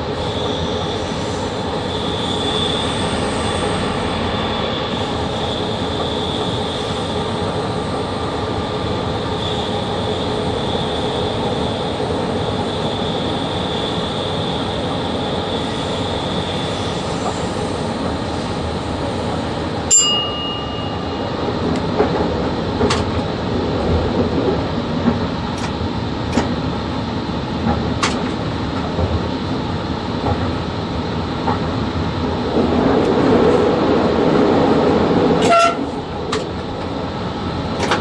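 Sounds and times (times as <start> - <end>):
high steady tone: 19.9 - 21.7
locomotive cab noise: 32.4 - 38.0.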